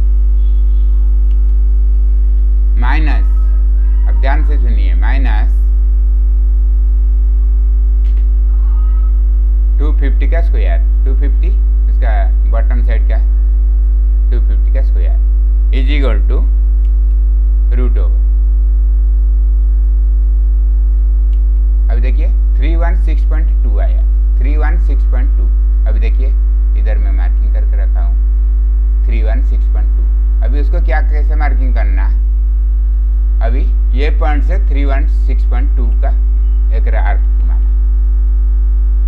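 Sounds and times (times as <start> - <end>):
electrical mains hum: 0.0 - 39.0
man speaking indistinctly: 2.8 - 5.7, 9.8 - 13.3, 14.3 - 16.6, 17.7 - 18.2, 21.9 - 28.2, 29.0 - 32.2, 33.4 - 37.8.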